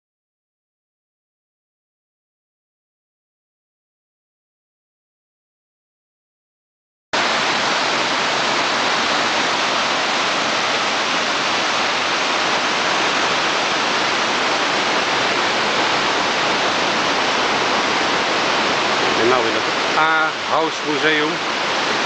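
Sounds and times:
waterfall rushing: 0:07.2 - 0:22.0.

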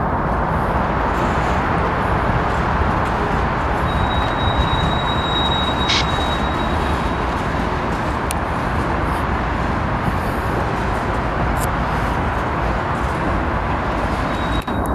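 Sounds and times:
train wheels rumbling on rail: 0:00.0 - 0:14.9
high wheel squeal: 0:03.7 - 0:07.7, 0:14.0 - 0:14.9.

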